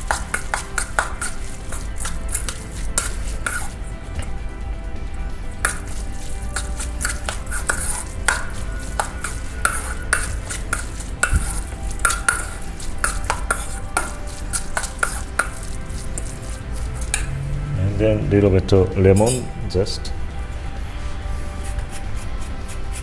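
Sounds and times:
spoon scraping metal bowl: 0.0s - 3.9s, 5.5s - 17.5s.

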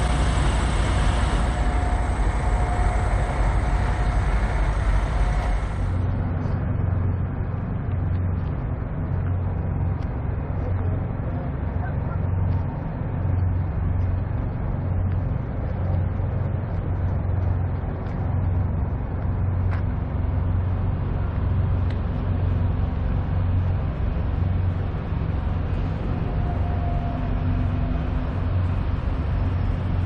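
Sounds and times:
diesel truck engine idling: 0.0s - 6.2s.

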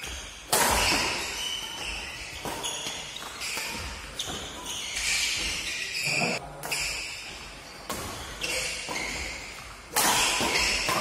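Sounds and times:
rackets striking shuttlecock: 0.0s - 5.2s, 7.9s - 11.0s
shoes squeaking on court: 0.0s - 11.0s.

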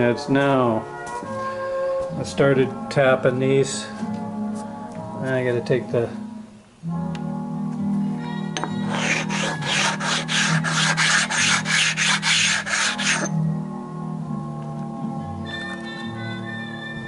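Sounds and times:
stone rasping across cast iron: 8.8s - 13.4s.

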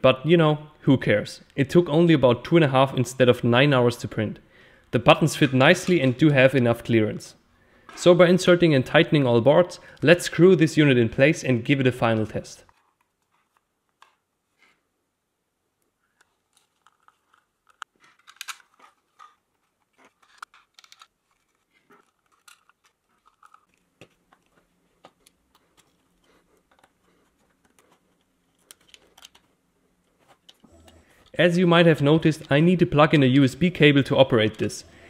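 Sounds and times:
hands handling electronics: 12.6s - 14.8s, 15.8s - 34.7s.

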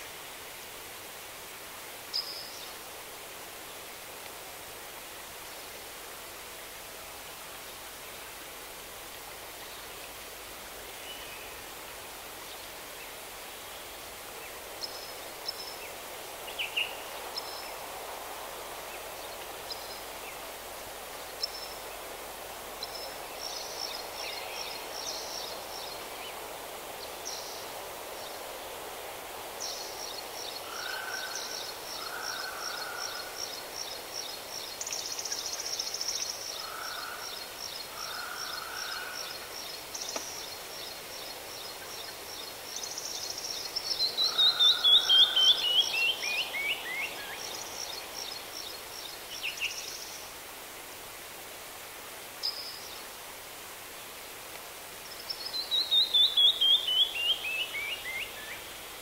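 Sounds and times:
steady outdoor hiss: 0.0s - 59.0s
songbirds singing: 29.6s - 50.3s, 55.0s - 59.0s.

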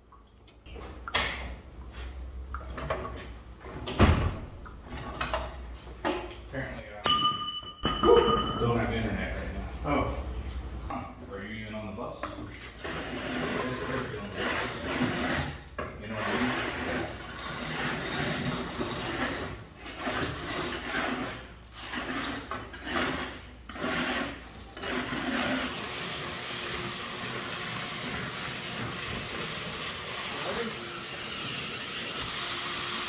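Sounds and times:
steel slats scraping: 12.7s - 25.8s.

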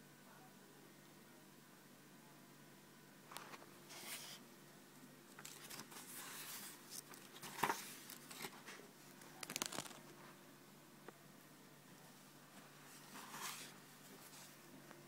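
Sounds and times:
book pages rustling: 5.4s - 10.0s, 12.9s - 14.6s
page snap: 9.4s - 10.0s.

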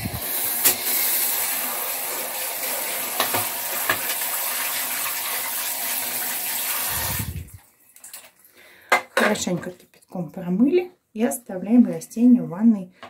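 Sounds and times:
shower spray hissing and splashing: 0.0s - 7.6s.

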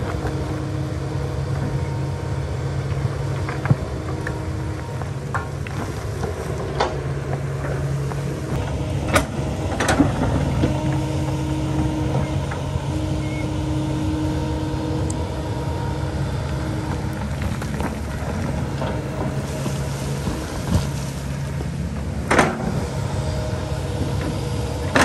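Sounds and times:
excavator diesel engine running: 0.0s - 25.0s
higher steady tone: 10.3s - 17.4s.

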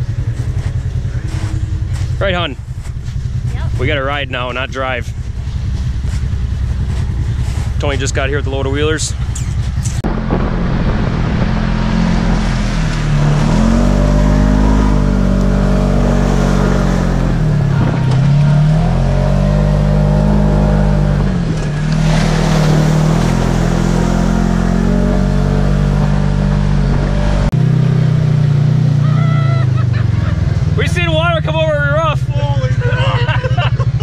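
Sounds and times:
engine revving: 0.0s - 34.0s
tyres rushing through slush: 21.5s - 25.7s.

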